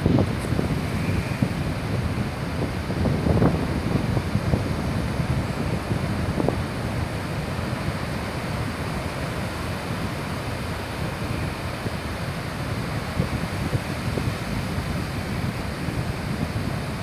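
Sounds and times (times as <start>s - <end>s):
surf breaking on beach: 0.0s - 17.0s
wind rumbling on microphone: 0.0s - 17.0s.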